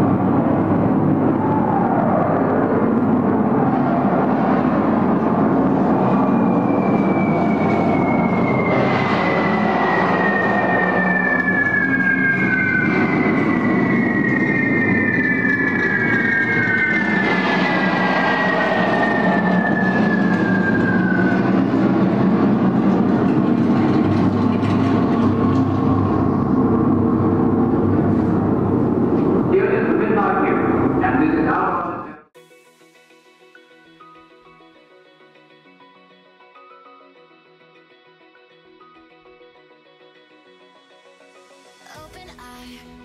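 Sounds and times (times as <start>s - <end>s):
loud steady rumble: 0.0s - 31.6s
falling whistle: 1.2s - 28.8s.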